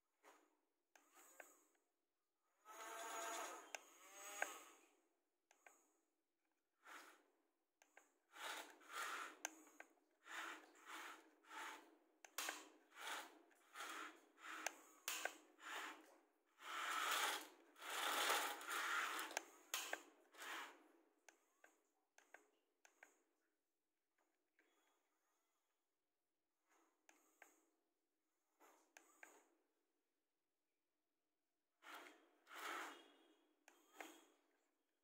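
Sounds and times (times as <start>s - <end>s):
small electric gear motors whirring: 2.6s - 5.0s, 8.0s - 20.8s, 31.8s - 33.1s.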